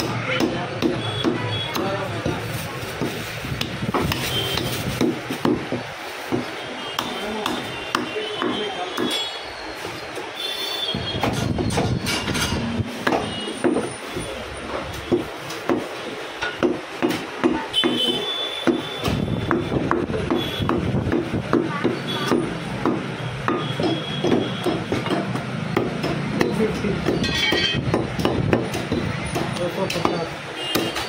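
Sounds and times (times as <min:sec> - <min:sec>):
cleaver chopping on wooden block: 0:00.0 - 0:02.0, 0:16.6 - 0:18.0, 0:18.6 - 0:31.0.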